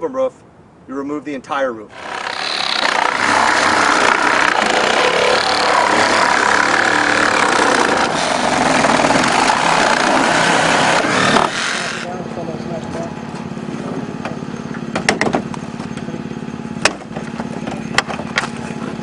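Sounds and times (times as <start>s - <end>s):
reciprocating saw cutting metal: 1.9s - 12.1s.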